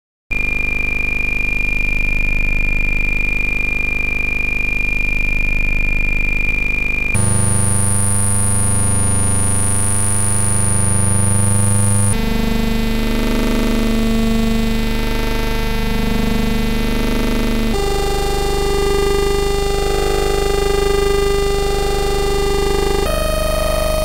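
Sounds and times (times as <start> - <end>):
buzzing electronic drone: 0.4 - 24.0
thin high whine: 6.1 - 12.2.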